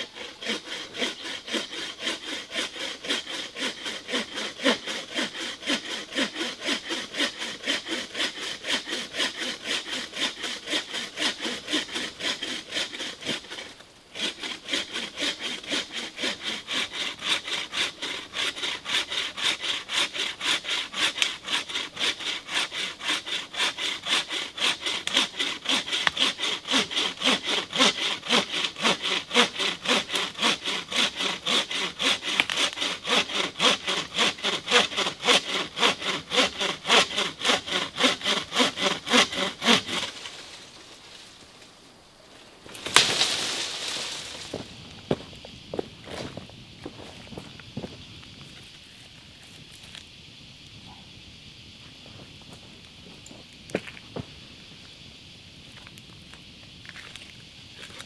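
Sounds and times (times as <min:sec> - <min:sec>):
saw cutting through log: 0:00.0 - 0:40.8.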